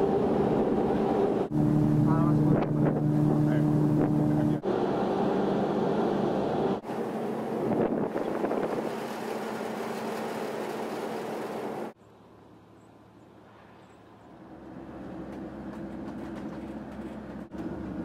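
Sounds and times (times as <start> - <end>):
ferry engine rumble: 0.0 - 18.0
wind on microphone: 7.6 - 9.0
car engine and road noise: 9.6 - 18.0.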